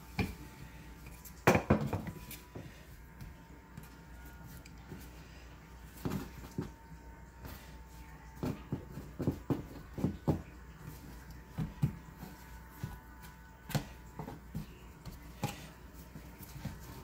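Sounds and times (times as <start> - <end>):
hands patting dough on board: 8.4 - 17.0.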